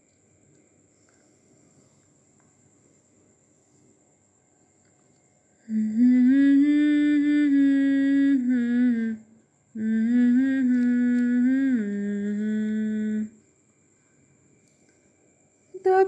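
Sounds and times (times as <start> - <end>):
person humming a melody: 5.7 - 13.4.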